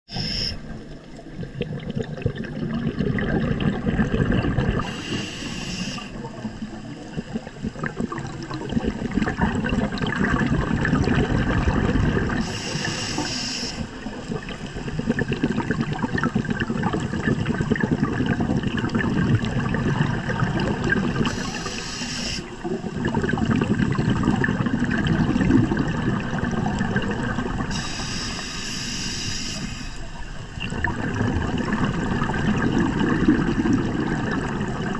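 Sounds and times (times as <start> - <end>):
regulator hissing inhale: 0.1 - 0.8, 4.8 - 6.4, 12.4 - 14.0, 21.2 - 22.6, 27.7 - 30.2
bubbling exhaled air underwater: 0.1 - 34.9.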